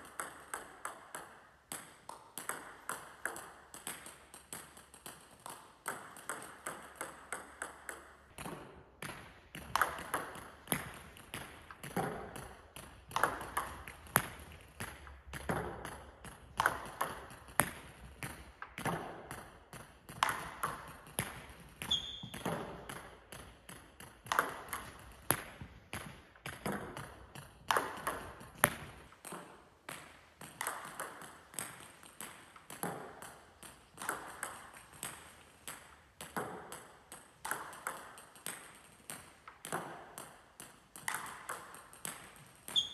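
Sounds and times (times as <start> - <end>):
table tennis ball bouncing: 0.0 - 42.9
bat striking table tennis ball: 5.8 - 12.5, 27.7 - 36.9.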